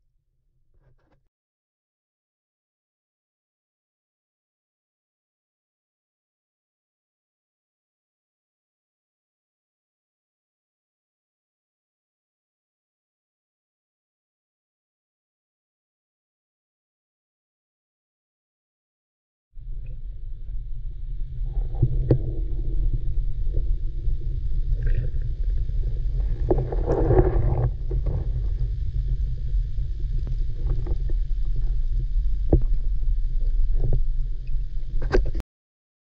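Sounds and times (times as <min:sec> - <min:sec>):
underwater rumble of water: 0:19.6 - 0:35.4
faint clicks and knocks: 0:32.4 - 0:35.4.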